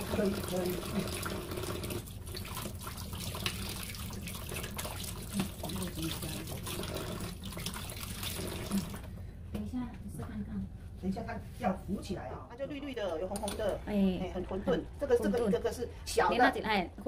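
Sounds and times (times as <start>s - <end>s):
tap water running into sink: 0.0s - 9.1s.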